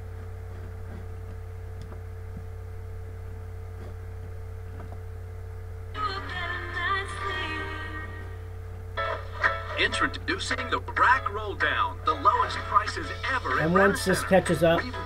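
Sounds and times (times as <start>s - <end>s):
low electrical hum: 0.0s - 15.0s
tv music: 5.9s - 15.0s.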